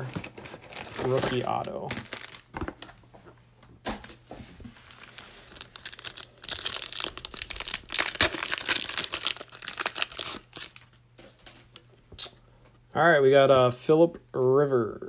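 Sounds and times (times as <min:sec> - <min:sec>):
wrapper crinkling and tearing: 0:00.0 - 0:02.9, 0:04.8 - 0:11.6.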